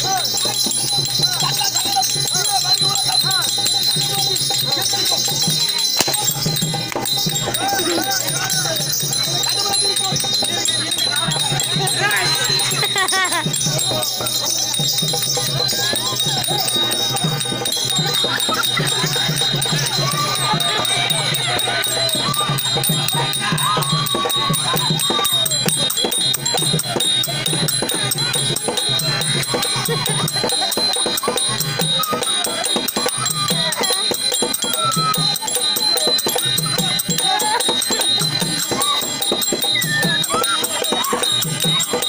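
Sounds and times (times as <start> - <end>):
metallic jingling rattle: 0.0 - 42.0
wavering high melody: 0.0 - 42.0.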